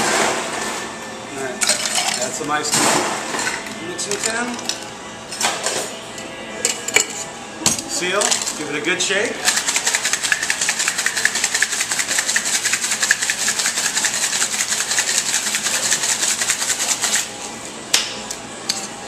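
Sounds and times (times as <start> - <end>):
ice rattling in cocktail shaker: 9.4 - 17.3.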